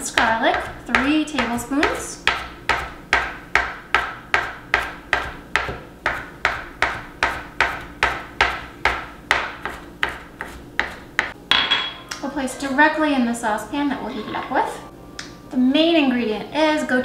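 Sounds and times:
knife chopping on cutting board: 0.1s - 11.4s.

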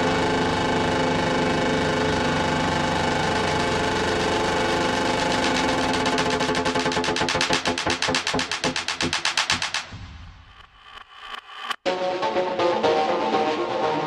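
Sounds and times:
buzzing synth drone: 0.0s - 9.8s
fast pulsing rhythm: 0.0s - 14.0s.

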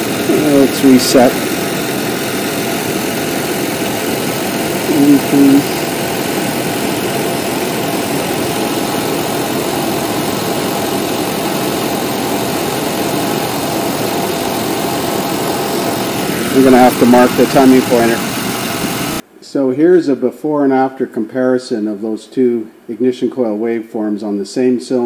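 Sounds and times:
engine idling: 0.0s - 19.2s.

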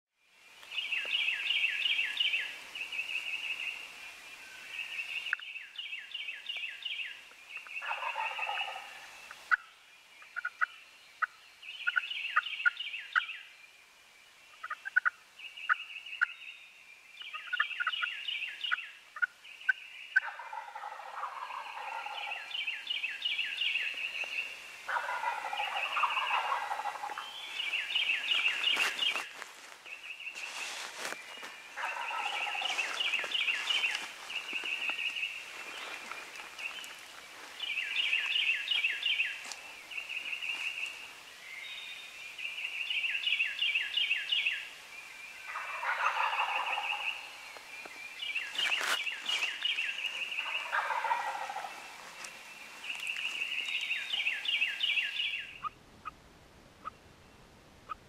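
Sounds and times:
turkeys gobbling: 7.8s - 9.7s, 14.6s - 15.1s, 20.2s - 22.6s, 24.9s - 29.4s, 31.7s - 36.8s, 45.5s - 47.3s, 48.6s - 54.5s.

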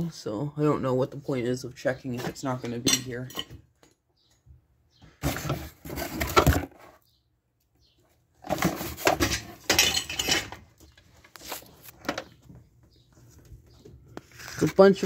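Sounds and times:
metal parts clattering and clinking: 9.1s - 10.8s.

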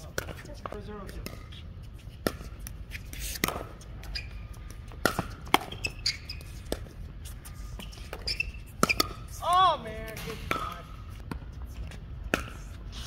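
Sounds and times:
ball bouncing on hard court: 5.0s - 6.9s, 8.1s - 9.3s, 10.1s - 11.5s.

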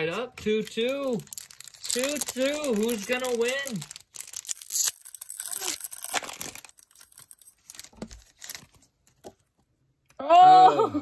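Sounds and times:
foil packs tearing and crinkling: 0.6s - 8.9s.

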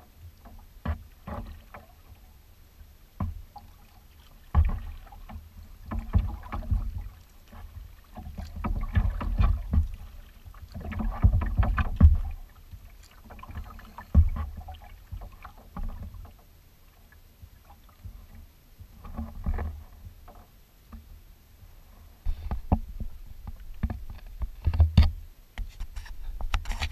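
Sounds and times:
paddle splashes: 0.0s - 21.1s
water washing against hull: 0.0s - 26.9s
low rumbling thumps: 11.0s - 12.4s, 22.3s - 25.3s.

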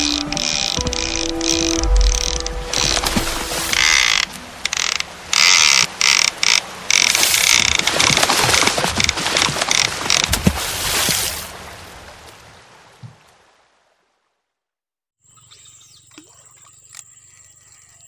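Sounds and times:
fishing reel ratchet clicking: 3.8s - 7.7s.

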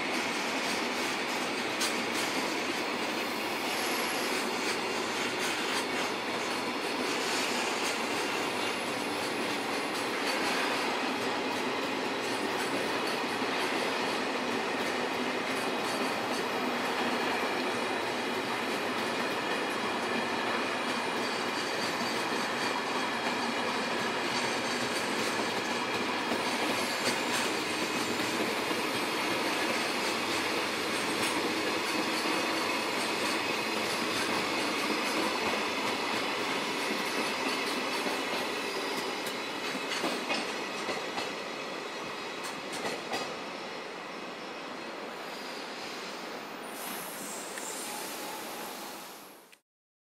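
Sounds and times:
train wheels rumbling on rails: 0.0s - 49.5s
wheels clicking over rail joints: 20.9s - 41.4s.

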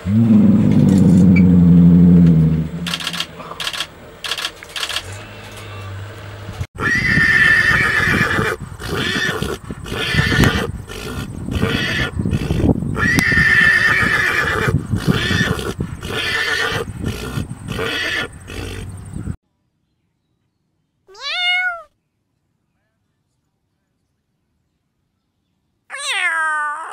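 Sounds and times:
horse whinnying: 6.8s - 18.9s
cat meowing: 21.1s - 21.9s, 25.9s - 26.9s.

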